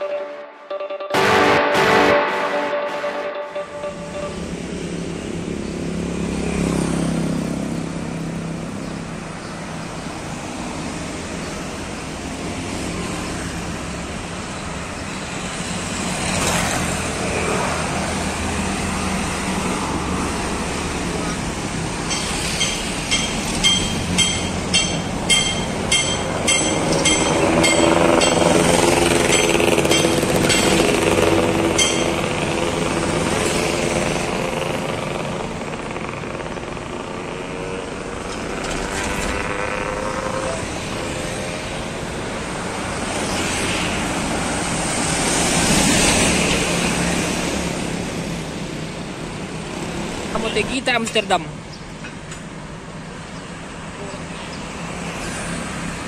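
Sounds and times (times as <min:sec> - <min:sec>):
short beeps: 0:00.0 - 0:04.6
road traffic passing: 0:00.0 - 0:56.0.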